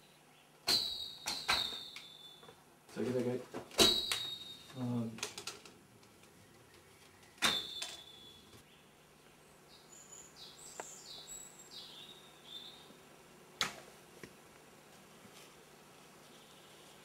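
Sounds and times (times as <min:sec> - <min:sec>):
bird chirps: 0:00.0 - 0:02.6, 0:03.8 - 0:04.9, 0:06.4 - 0:09.0, 0:09.7 - 0:12.9.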